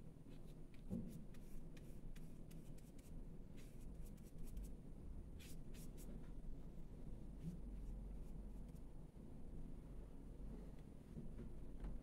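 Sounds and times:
paintbrush scratching on paper: 5.4 - 6.1.

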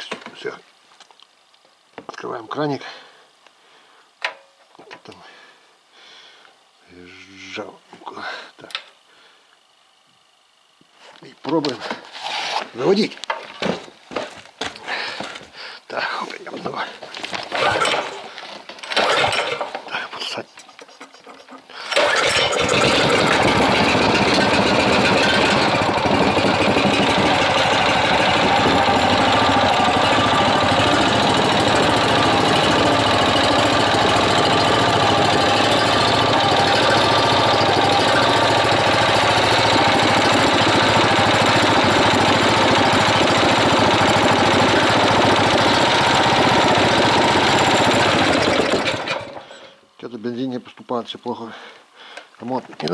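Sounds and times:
small petrol engine running: 17.3 - 20.1, 21.7 - 49.7.

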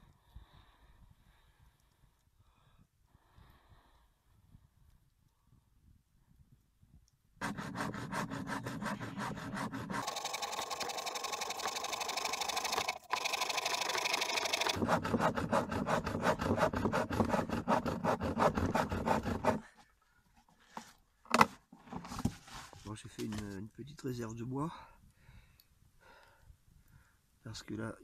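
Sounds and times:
hand saw cutting log: 7.4 - 19.7.

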